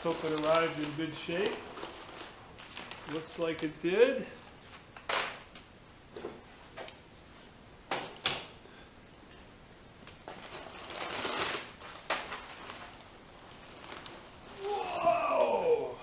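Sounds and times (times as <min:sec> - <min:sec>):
packing paper rustling: 0:00.0 - 0:05.5, 0:10.2 - 0:15.8.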